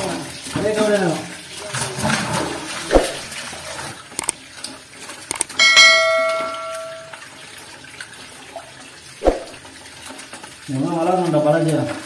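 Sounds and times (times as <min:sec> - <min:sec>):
sharp clicks: 0:05.3 - 0:05.6
bright bell ding: 0:05.5 - 0:07.2.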